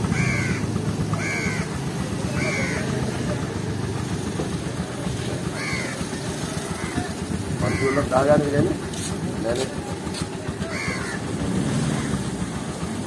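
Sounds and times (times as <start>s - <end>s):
crow cawing: 0.0s - 3.2s, 5.4s - 8.3s, 10.6s - 11.2s
street traffic rumble: 0.0s - 13.0s.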